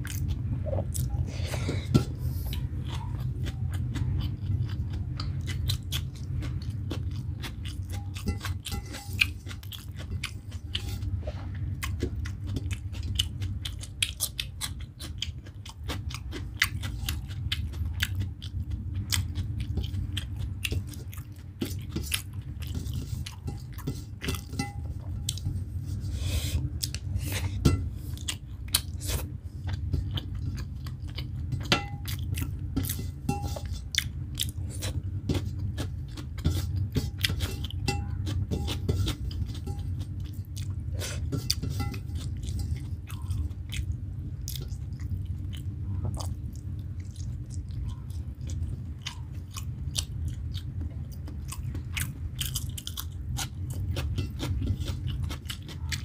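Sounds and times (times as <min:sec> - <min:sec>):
low hum: 0:00.0 - 0:13.7
person chewing wetly: 0:00.0 - 0:56.0.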